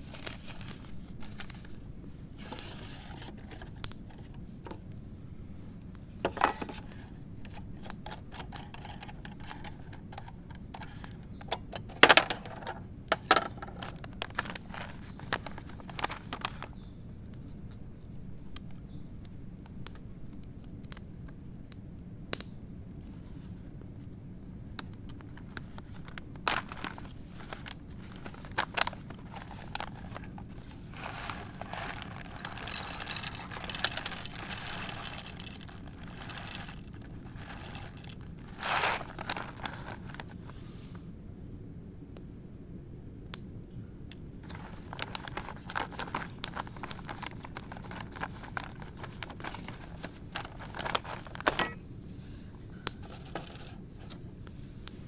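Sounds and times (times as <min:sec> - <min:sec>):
paper bag crinkling: 0:25.4 - 0:40.5, 0:44.4 - 0:51.8.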